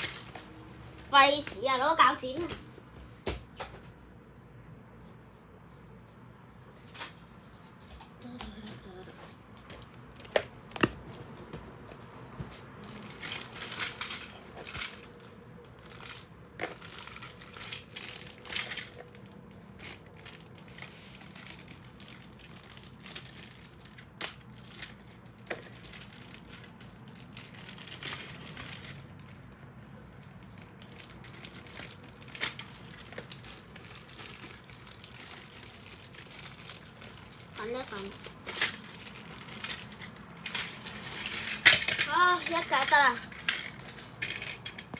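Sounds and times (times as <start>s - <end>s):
plastic packaging crinkling: 12.9s - 29.5s, 30.1s - 44.7s.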